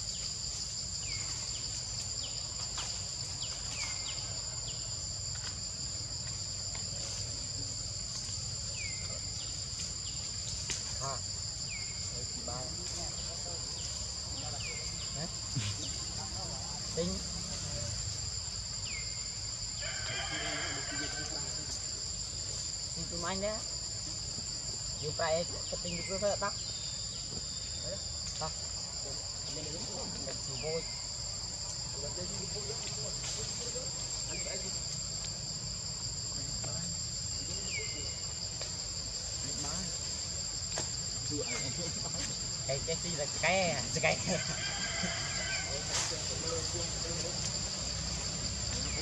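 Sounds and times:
high-pitched insect chorus: 0.0 - 49.0.

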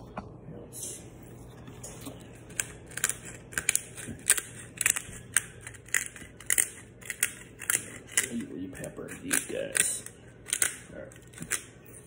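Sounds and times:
pepper grinder crunching: 2.4 - 12.0.

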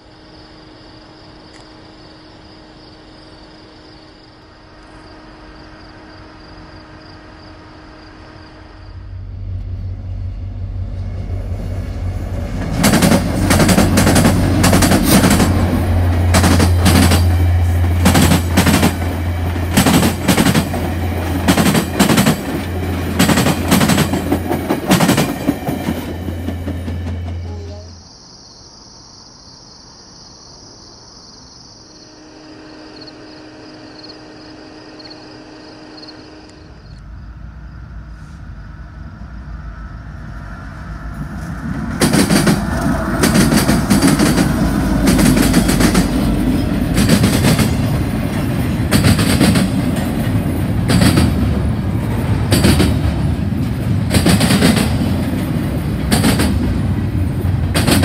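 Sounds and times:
faint insect chirring: 0.0 - 12.2, 25.5 - 45.0
diesel locomotive drone: 0.0 - 28.0, 31.9 - 58.0
train wheels clacking over track joints: 12.1 - 27.7, 41.1 - 58.0.

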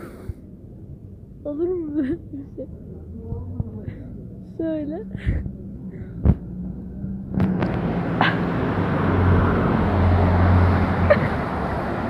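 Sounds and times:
car passing close by: 6.2 - 12.0.

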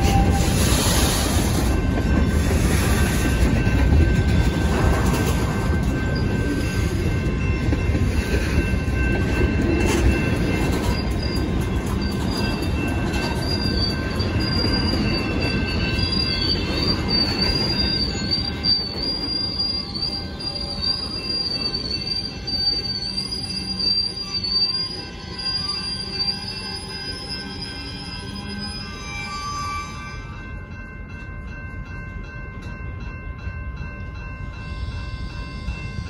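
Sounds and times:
train wheels rumbling on rails: 0.0 - 36.0
high wavering wheel squeal: 10.0 - 30.6.

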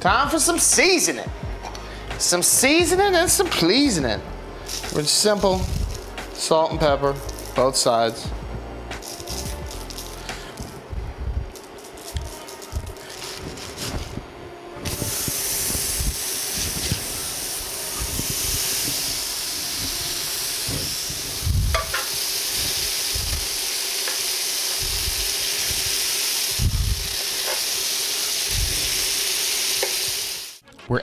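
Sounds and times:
burger patties sizzling in a pan: 15.0 - 30.6.

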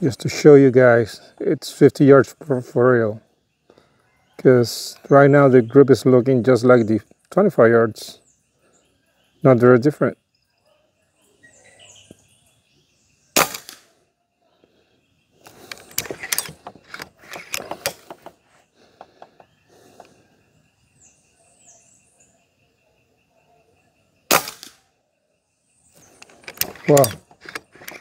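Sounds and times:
air rifle shot crack: 13.4 - 13.9, 24.3 - 24.8
metallic clicks of rifle lever: 15.5 - 18.3, 26.0 - 28.0.

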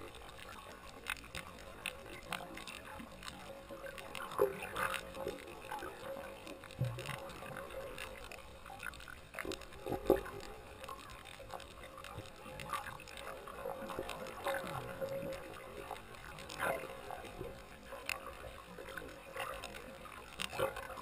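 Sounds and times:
faint steady hum: 0.0 - 21.0
underwater clicks and crackles: 0.0 - 21.0.

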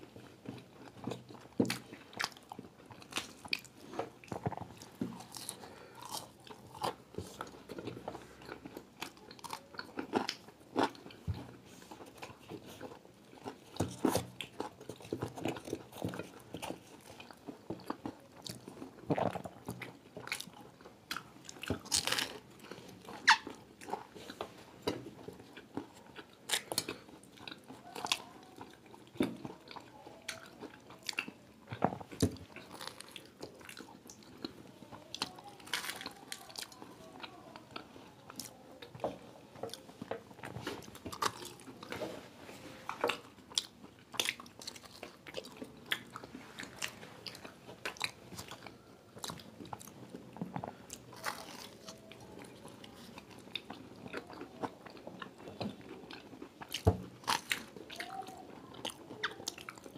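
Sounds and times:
crunching and chewing pastry: 0.0 - 59.9.

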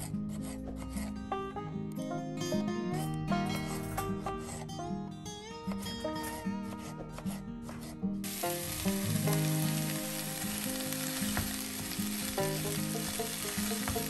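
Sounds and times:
vegetables sizzling in a pot: 8.2 - 14.0.

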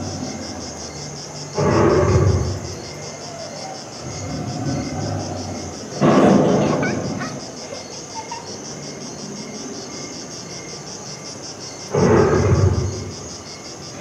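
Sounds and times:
loud low dinosaur roar: 0.0 - 0.8, 1.5 - 2.8, 4.0 - 7.2, 11.9 - 13.3
insects chirping: 0.0 - 14.0.

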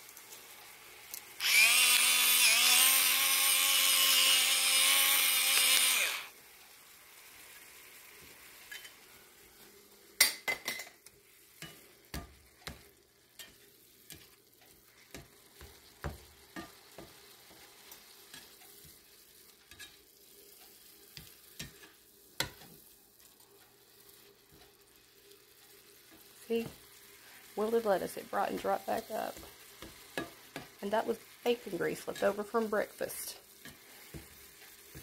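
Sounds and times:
lettuce sizzling in grease: 0.0 - 35.0
spatula scraping pan: 11.2 - 22.9, 25.2 - 35.0.

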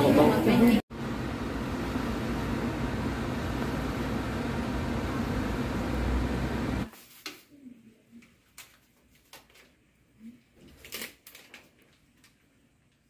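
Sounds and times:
fan hum and hiss: 0.9 - 7.3.

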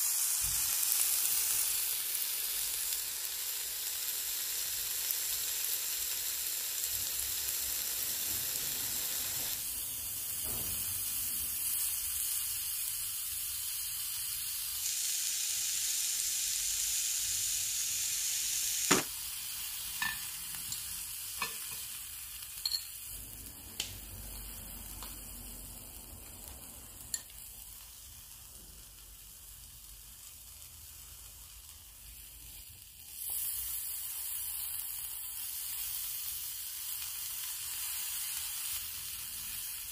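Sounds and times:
meat sizzling on grill plate: 0.0 - 39.9
metal utensils clicking on plate: 22.6 - 22.9.

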